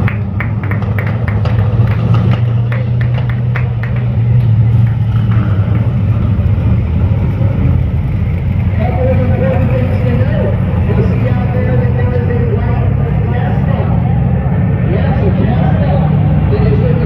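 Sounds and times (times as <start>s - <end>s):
exhaust pops and crackles: 0.0s - 12.3s
car engines idling and rumbling: 0.0s - 17.0s.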